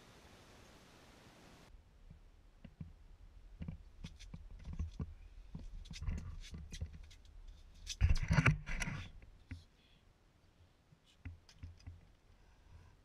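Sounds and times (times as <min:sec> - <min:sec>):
rustling and thumps: 0:03.6 - 0:09.7.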